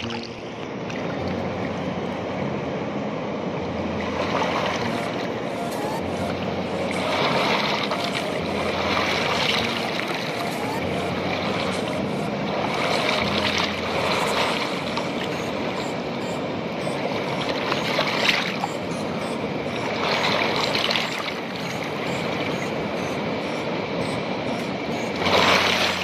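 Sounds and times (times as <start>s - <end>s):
river water splashing over stones: 3.9s - 18.9s, 19.9s - 22.7s, 25.0s - 26.0s.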